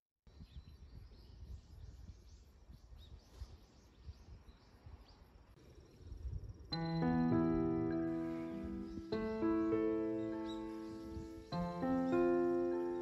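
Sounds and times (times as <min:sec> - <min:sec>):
small birds chirping: 0:00.3 - 0:13.0
low uneven rumble: 0:05.6 - 0:13.0.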